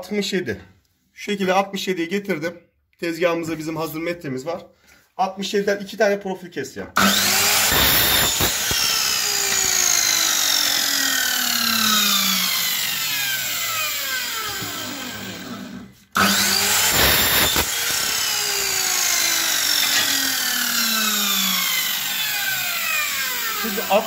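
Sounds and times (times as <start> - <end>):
electric mitre saw cutting metal: 7.0 - 24.0
saw blade winding down whine: 7.0 - 24.0.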